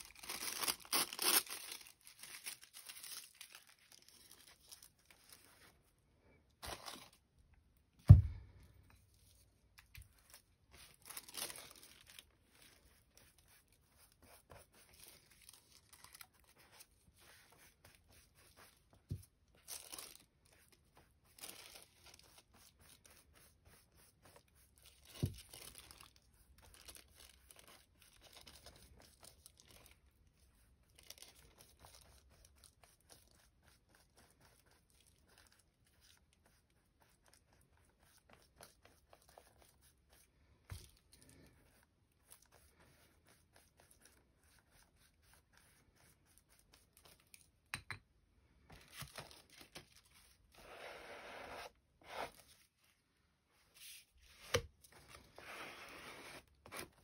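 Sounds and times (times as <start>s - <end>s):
paper rustling and tearing: 0.0s - 5.7s, 6.6s - 7.2s, 10.1s - 18.7s
glue brush dabbing: 12.5s - 19.5s, 20.5s - 25.4s.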